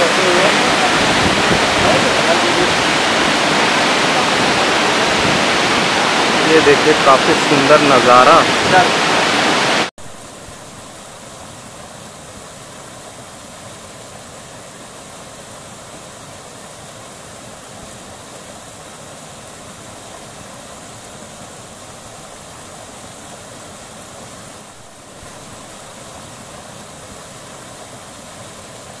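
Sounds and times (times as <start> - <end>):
even rushing noise: 0.0 - 9.9
waterfall roaring: 0.0 - 29.0.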